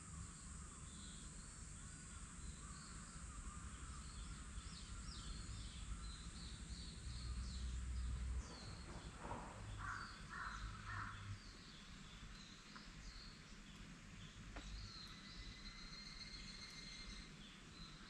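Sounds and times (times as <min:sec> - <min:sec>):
small birds chirping: 0:00.1 - 0:18.0
crow cawing: 0:09.8 - 0:11.3.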